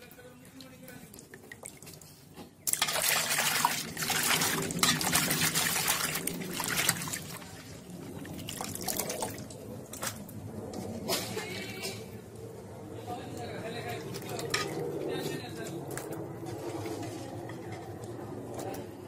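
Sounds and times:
water sloshing in a steel basin: 0.0s - 10.3s, 13.9s - 14.8s.

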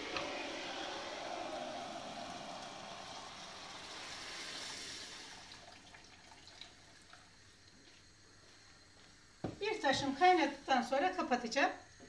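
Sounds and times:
water pouring into pot: 0.0s - 7.6s.

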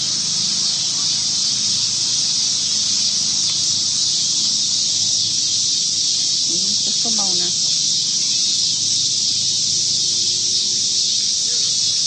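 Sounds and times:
insect chorus drone: 0.0s - 12.0s.

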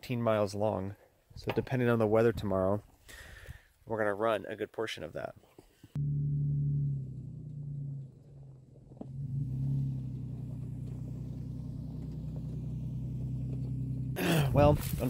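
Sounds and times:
truck engine running at low speed: 6.0s - 15.0s.

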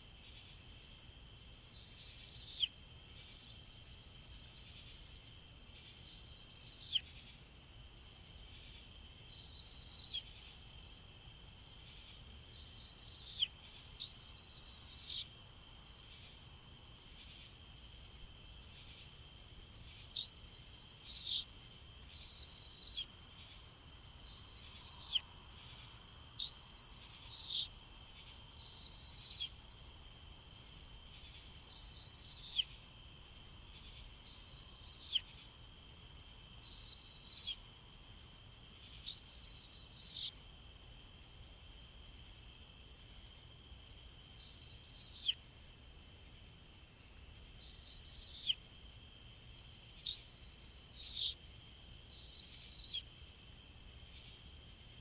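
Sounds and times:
high-pitched insect drone: 50.0s - 51.4s.

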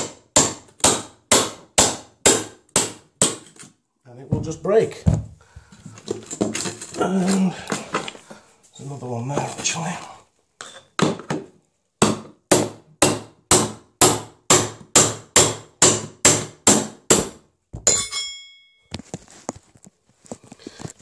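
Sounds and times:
hammer striking a chisel: 0.0s - 3.5s, 12.0s - 18.8s
ringing metallic clank: 17.8s - 18.9s.

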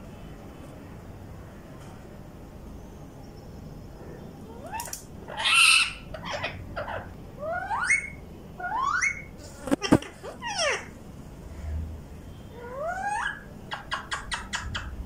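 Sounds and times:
parakeets calling squeaky notes: 4.5s - 10.9s, 12.5s - 14.8s.

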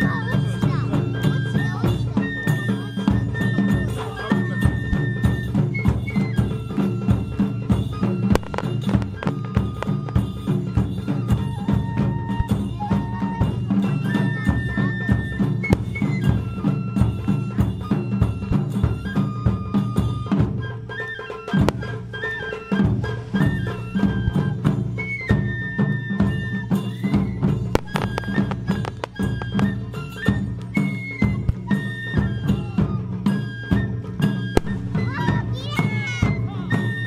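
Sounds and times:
high flute melody: 0.0s - 37.0s
taiko drums playing: 0.0s - 37.0s.

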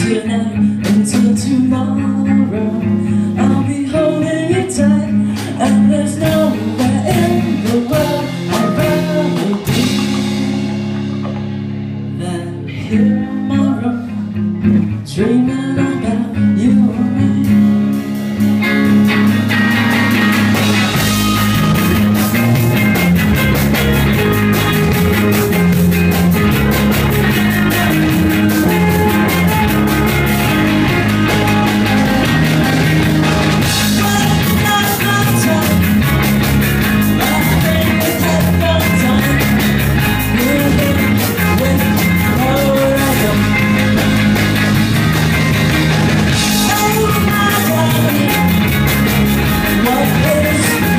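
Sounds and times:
person singing lead vocal: 0.0s - 11.4s, 12.1s - 18.1s, 26.9s - 44.1s, 46.3s - 50.9s
rock band playing live: 0.0s - 50.9s.

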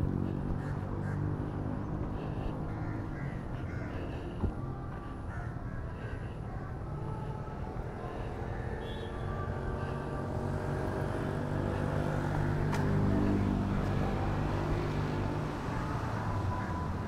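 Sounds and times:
vehicle engine passing: 0.0s - 4.4s, 8.2s - 16.8s.

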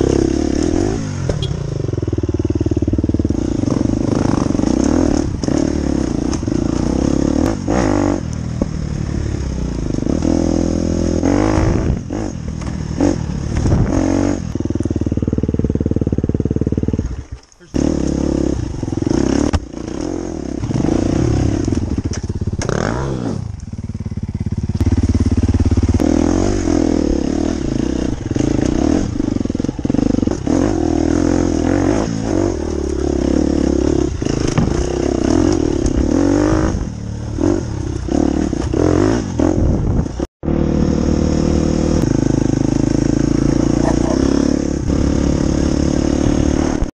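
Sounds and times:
dirt bike engine revving: 0.0s - 46.9s
clatter over rocky trail: 3.4s - 9.0s, 21.4s - 26.8s, 34.1s - 36.1s.

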